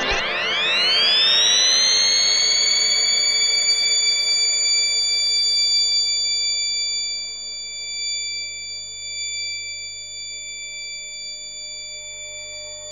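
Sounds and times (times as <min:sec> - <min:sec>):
high synthesizer tones: 0:00.0 - 0:01.0.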